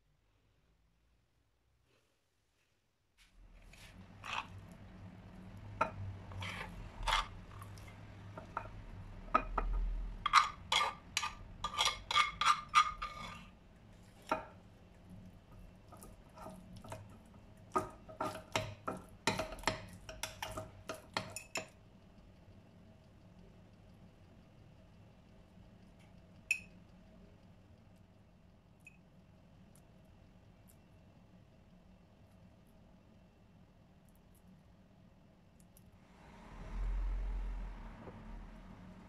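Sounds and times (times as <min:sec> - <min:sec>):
metal spoon scraping ceramic dish: 0:04.2 - 0:04.6, 0:05.8 - 0:08.8, 0:09.4 - 0:13.5
faint low hum: 0:21.3 - 0:39.0.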